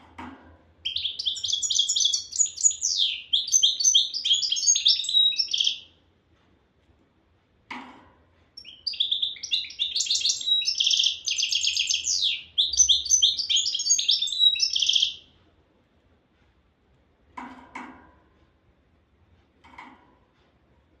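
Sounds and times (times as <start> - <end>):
goldfinch singing: 0.9 - 5.8, 8.6 - 15.2.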